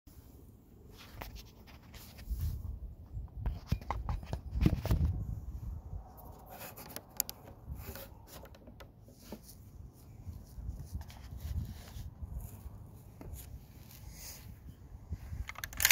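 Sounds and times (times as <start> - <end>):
light clicks and rustles: 6.2 - 14.5, 15.2 - 15.9
camera handling noise: 6.4 - 8.7, 15.4 - 15.9.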